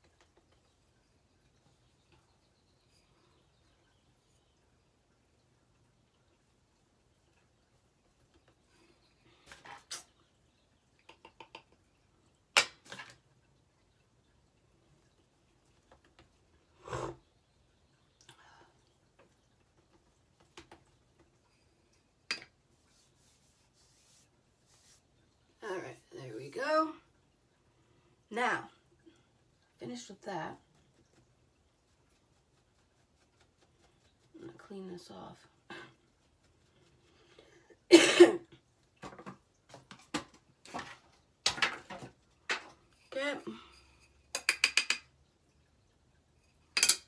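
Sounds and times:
faint clicks and taps of makeup items: 0:11.0 - 0:11.9
small items clicking and tapping: 0:11.0 - 0:13.3, 0:44.3 - 0:45.1
person coughing: 0:37.9 - 0:38.5.

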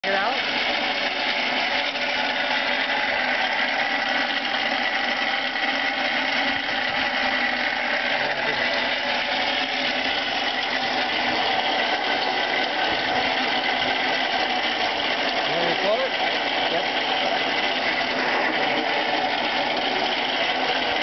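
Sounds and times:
hand-cranked forge blower gears whirring: 0:00.0 - 0:21.0.

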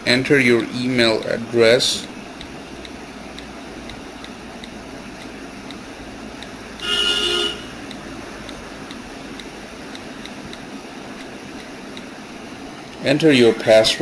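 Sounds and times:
short horn-like toot: 0:06.8 - 0:07.8.

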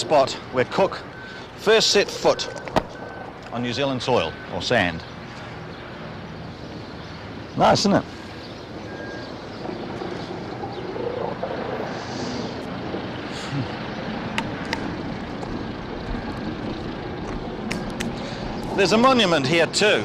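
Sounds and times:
vehicle engine running: 0:08.1 - 0:19.5.

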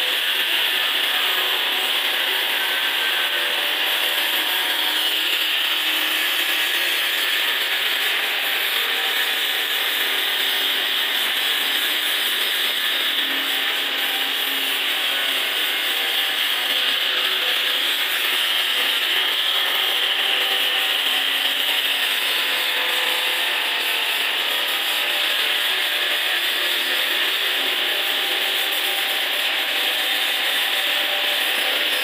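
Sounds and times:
angle grinder sanding stone: 0:00.0 - 0:32.0.

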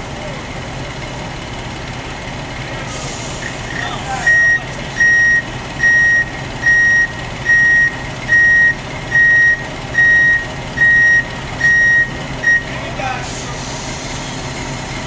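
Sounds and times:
low engine drone: 0:00.0 - 0:15.0
vehicle backup alarm beeping: 0:03.7 - 0:12.8.

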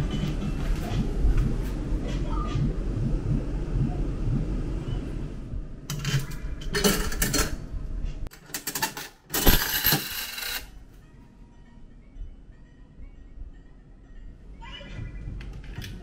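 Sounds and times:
coins clattering into metal tray: 0:05.9 - 0:07.5, 0:08.3 - 0:10.8.

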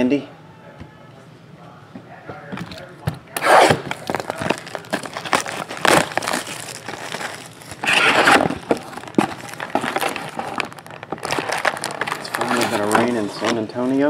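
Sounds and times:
shrink wrap crinkling and tearing: 0:03.3 - 0:14.0
cardboard lid rustling: 0:03.6 - 0:13.7.

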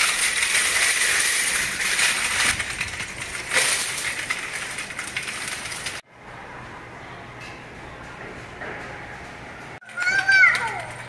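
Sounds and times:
shopping cart rattling: 0:00.0 - 0:06.0, 0:09.8 - 0:11.0.

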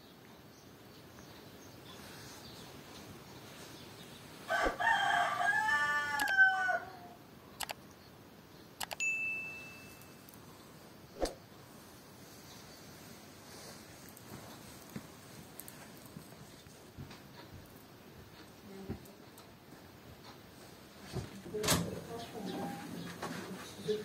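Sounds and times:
rooster crowing: 0:04.5 - 0:07.2
sharp clicks: 0:06.2 - 0:06.4, 0:07.6 - 0:08.0, 0:08.8 - 0:09.0.

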